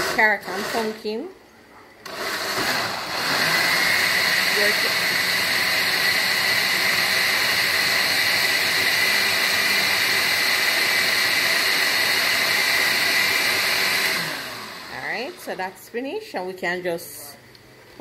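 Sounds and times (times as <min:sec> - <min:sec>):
blender motor winding down: 0:00.0 - 0:01.0, 0:02.0 - 0:15.4
blender running: 0:00.0 - 0:01.1, 0:02.0 - 0:15.6.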